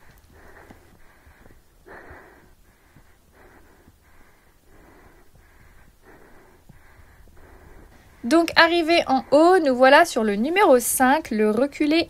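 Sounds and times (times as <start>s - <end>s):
person breathing hard: 0.0s - 8.3s.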